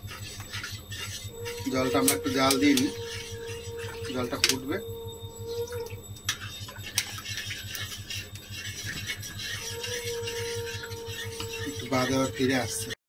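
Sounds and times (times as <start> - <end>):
spatula scraping and stirring gravy: 0.0 - 5.5, 6.1 - 13.0
low pulsing hum: 0.0 - 13.0.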